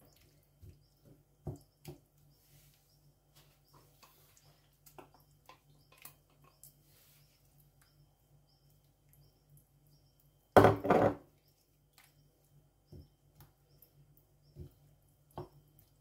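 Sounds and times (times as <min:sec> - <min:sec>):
soft wet stirring: 0:00.0 - 0:10.3
wood knocking against ceramic dish: 0:10.6 - 0:11.2.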